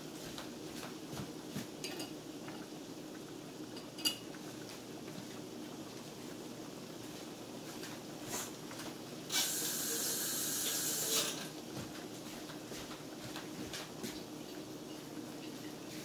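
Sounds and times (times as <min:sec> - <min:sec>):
sauce simmering with popping bubbles: 0:00.1 - 0:09.9, 0:11.5 - 0:16.0
steady hiss: 0:09.2 - 0:11.6.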